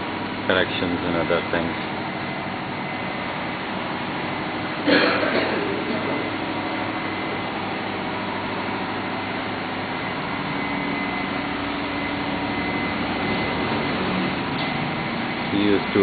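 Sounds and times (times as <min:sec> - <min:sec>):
machinery droning: 0:00.0 - 0:16.0.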